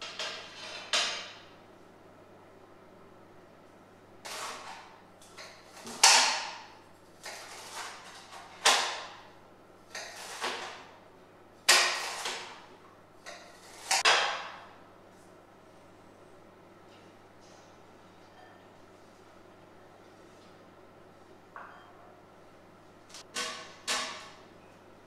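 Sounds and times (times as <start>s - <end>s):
knife scraping on glass chopping board: 0.1s - 1.2s, 7.2s - 8.7s.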